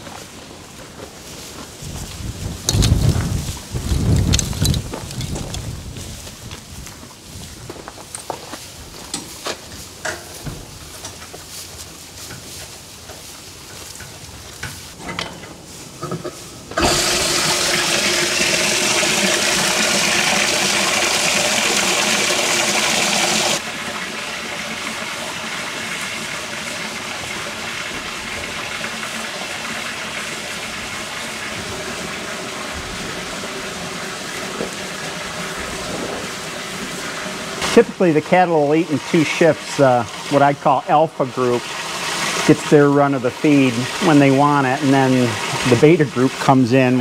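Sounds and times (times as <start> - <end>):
water gushing into trough: 16.8 - 47.0.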